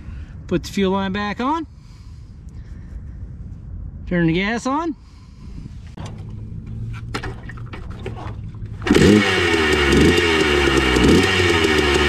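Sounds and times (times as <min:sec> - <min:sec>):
two-stroke engine starting and revving: 0:06.0 - 0:12.0.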